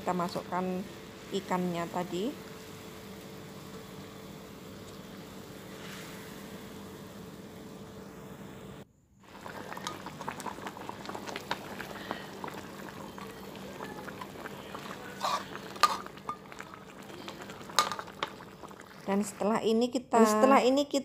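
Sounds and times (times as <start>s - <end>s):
sauce bubbling and popping: 9.2s - 19.6s
spatula stirring: 9.4s - 19.5s.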